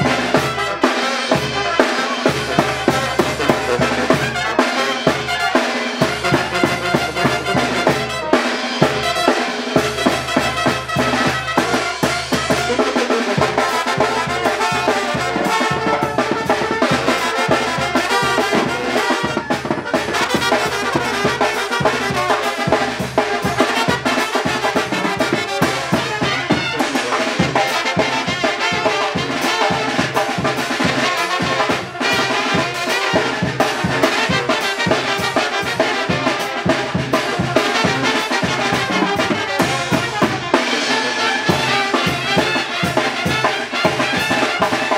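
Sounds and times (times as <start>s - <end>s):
brass band playing: 0.0s - 44.9s
drums and percussion beat: 0.0s - 44.9s
sousaphone bass line: 1.3s - 21.4s.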